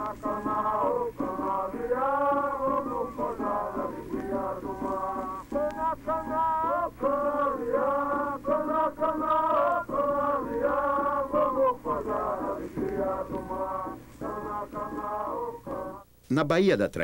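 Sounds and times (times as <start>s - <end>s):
men singing folk song: 0.0s - 16.0s
steady low hum: 0.0s - 16.3s.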